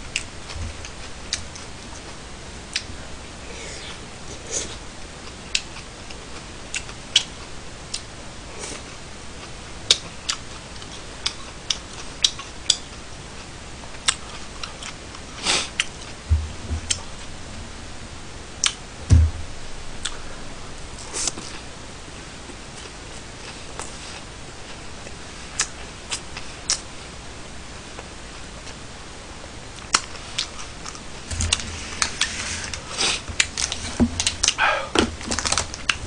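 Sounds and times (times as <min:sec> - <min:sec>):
chewing and smacking: 0:09.4 - 0:13.0, 0:14.0 - 0:15.2, 0:29.8 - 0:32.2
dull low thumps: 0:16.2 - 0:21.0.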